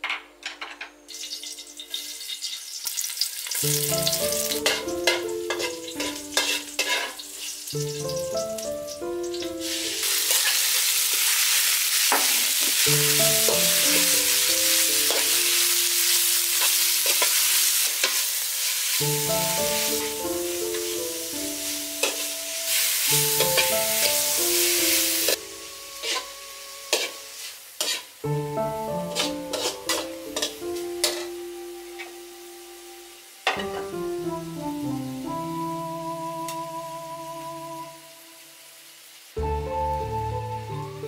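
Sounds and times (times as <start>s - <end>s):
light background music: 0.0s - 41.0s
beef sizzling in a wok: 1.0s - 41.0s
metal spatula scraping wok: 4.5s - 8.1s, 9.3s - 19.0s, 22.0s - 28.2s, 29.1s - 31.4s.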